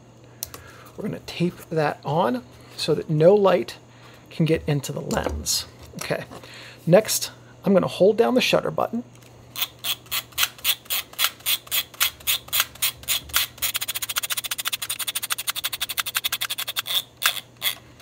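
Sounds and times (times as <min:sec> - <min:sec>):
camera thumbwheel ratcheting clicks: 0:09.6 - 0:17.8.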